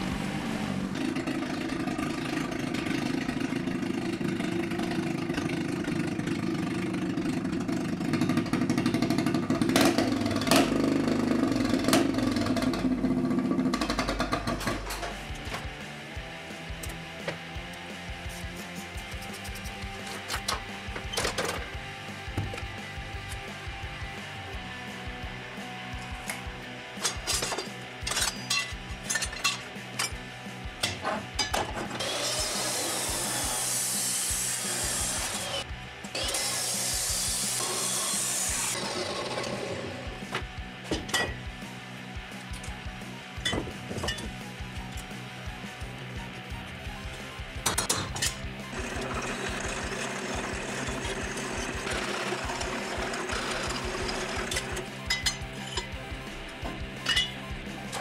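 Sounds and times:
chop saw cutting steel: 30.8 - 41.4, 47.7 - 56.0
metal bar clinking: 57.0 - 57.4.

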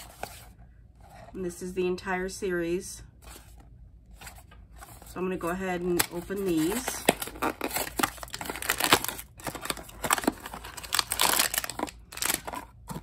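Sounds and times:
cardboard box being opened: 6.5 - 13.0.

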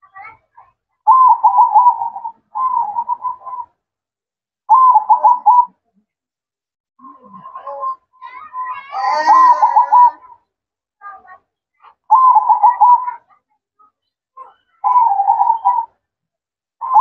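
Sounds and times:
dove cooing: 1.1 - 3.7, 4.7 - 5.8, 8.9 - 10.4, 12.1 - 13.2, 14.8 - 16.0.

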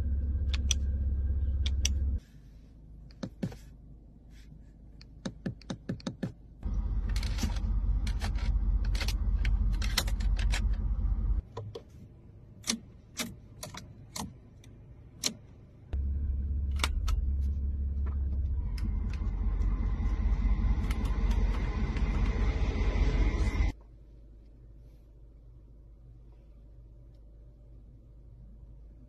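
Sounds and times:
faint steady whine: 15.9 - 29.0.

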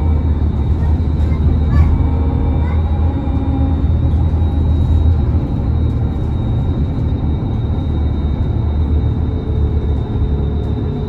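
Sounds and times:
bus cabin low rumble: 0.0 - 11.0.

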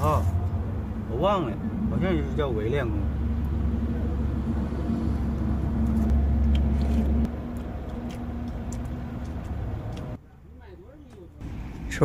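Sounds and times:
motor vehicle engine rumbling: 0.0 - 10.2, 11.2 - 12.0.

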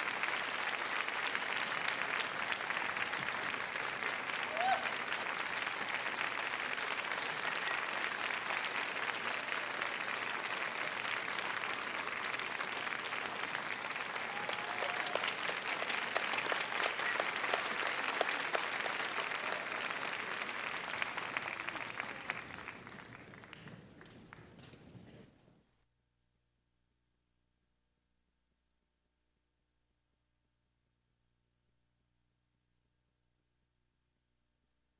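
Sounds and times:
audience applauding: 0.0 - 24.7.

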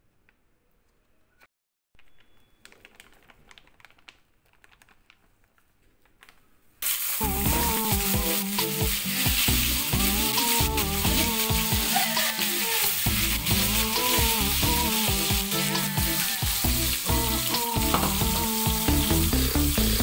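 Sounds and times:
meat sizzling in hot oil: 6.8 - 20.0.

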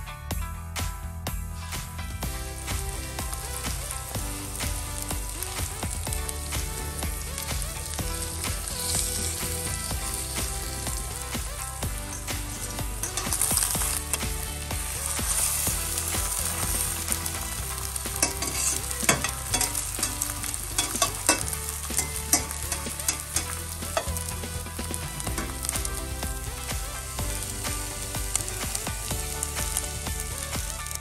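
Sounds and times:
food sizzling in a frying pan: 2.2 - 31.0
metal spatula scraping a pan: 12.0 - 25.7.

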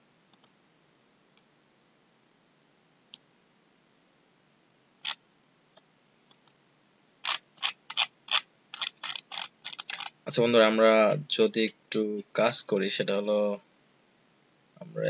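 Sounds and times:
computer mouse clicks: 0.3 - 0.6, 6.3 - 6.6, 7.2 - 10.2.

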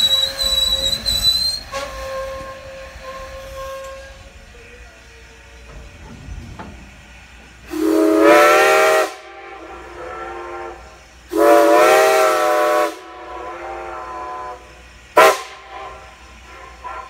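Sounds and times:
whistle echo: 0.0 - 2.4
steam locomotive chime whistle: 0.0 - 4.5, 7.7 - 17.0.

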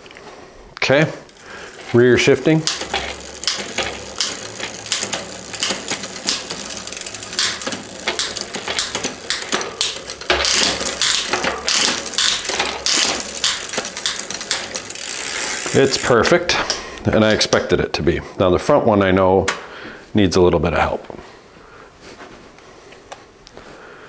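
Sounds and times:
bicycle chain clicking rattle: 0.8 - 16.8.

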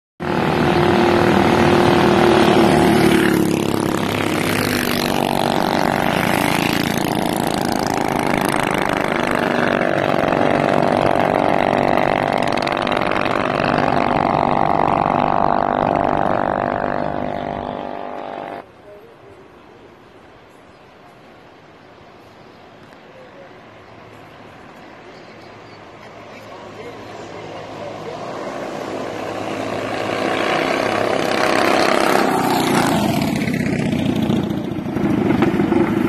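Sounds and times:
minibike engine running: 0.2 - 18.6, 26.6 - 36.0.

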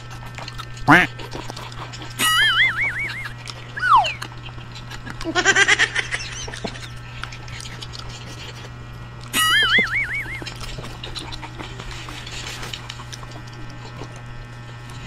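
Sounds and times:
falling whistle-like glide: 3.8 - 4.2
warbling electronic tone: 3.8 - 4.2.

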